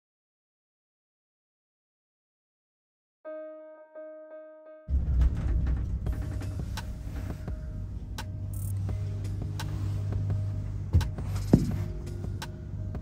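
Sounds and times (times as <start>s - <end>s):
faint rattle and clicks: 4.9s - 9.8s
gondola cabin humming: 4.9s - 13.0s
sharp knocks: 10.9s - 11.9s.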